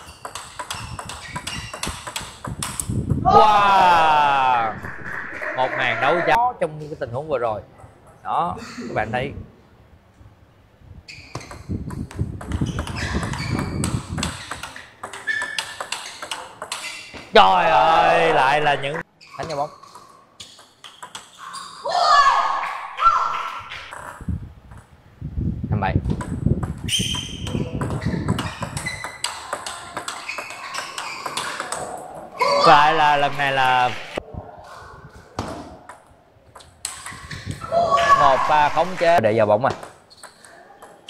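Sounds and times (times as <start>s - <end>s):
shoe squeaks on floor: 0.0s - 2.4s, 11.1s - 11.8s, 12.5s - 17.3s, 19.1s - 21.9s, 26.8s - 31.8s, 36.9s - 38.2s, 40.0s - 41.0s
table tennis ball clicking: 0.1s - 2.9s, 11.5s - 16.9s, 26.1s - 32.0s.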